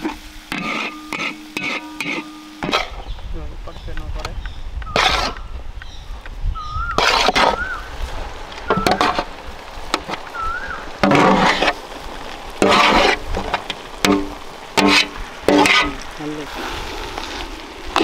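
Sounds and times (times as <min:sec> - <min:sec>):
metal ladle scraping steel plate: 0:00.0 - 0:03.1, 0:04.9 - 0:05.4, 0:06.9 - 0:07.7, 0:08.7 - 0:09.3, 0:11.0 - 0:11.8, 0:12.6 - 0:16.0.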